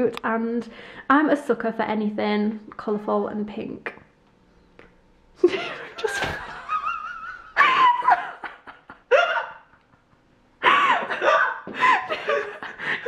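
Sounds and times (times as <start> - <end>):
hearty laughter: 5.4 - 13.0.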